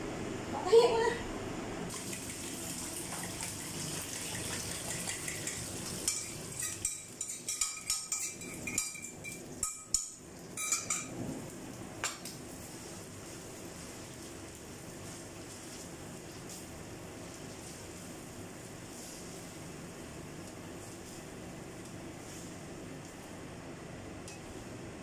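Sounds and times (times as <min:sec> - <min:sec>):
food sizzling in a frying pan: 0:01.9 - 0:22.8
utensil clinking and scraping bowl: 0:03.1 - 0:11.2.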